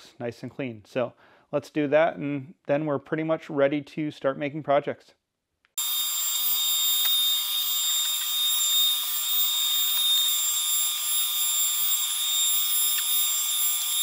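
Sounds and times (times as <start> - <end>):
dust extraction through hose: 5.8 - 14.0
router whining: 5.8 - 14.0.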